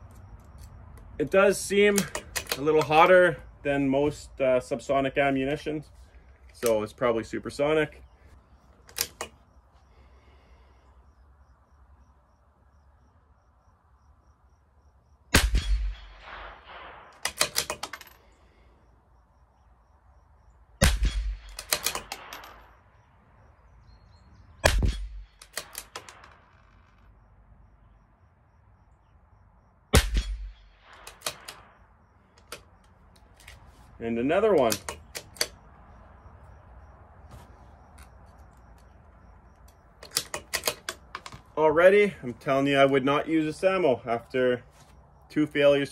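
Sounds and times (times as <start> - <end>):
rifle bolt metallic clicks: 0.0 - 3.1, 6.5 - 6.9, 8.8 - 9.4, 15.6 - 18.2, 20.8 - 22.6, 24.6 - 27.0, 30.0 - 31.7, 32.4 - 33.6, 34.4 - 35.6, 39.6 - 41.5
rifle shots: 15.3 - 17.9, 20.8 - 22.8, 24.6 - 26.6, 29.9 - 31.8.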